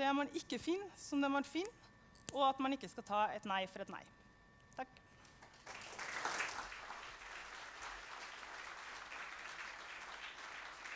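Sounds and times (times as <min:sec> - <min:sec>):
audience applauding: 0:05.4 - 0:10.9.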